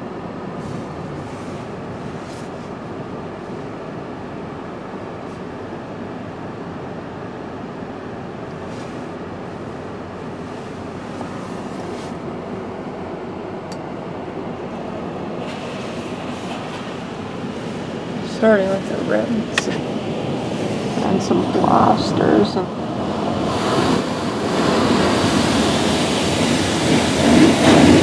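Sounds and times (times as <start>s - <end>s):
car wash water rushing: 0.0s - 6.2s, 7.4s - 13.4s, 14.1s - 28.0s.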